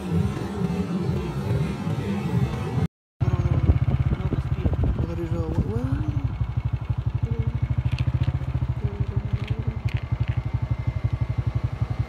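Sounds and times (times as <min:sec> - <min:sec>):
vehicle engine puttering: 0:03.2 - 0:12.0.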